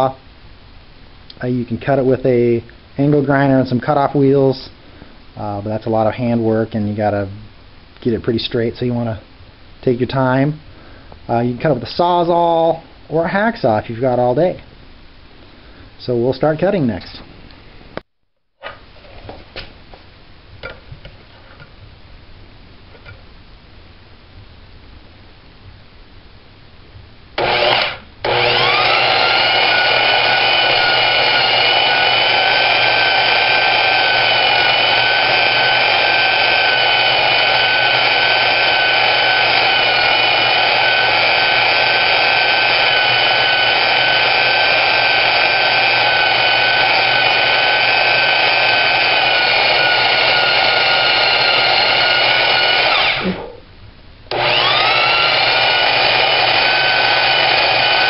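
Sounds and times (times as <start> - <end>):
band saw cutting steel: 27.4 - 53.6, 54.3 - 58.0.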